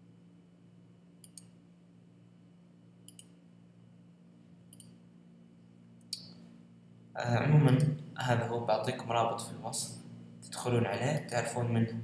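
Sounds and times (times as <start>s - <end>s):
faint electrical hum: 0.0s - 12.0s
computer mouse clicks: 1.2s - 1.6s, 3.0s - 3.4s, 4.7s - 5.0s.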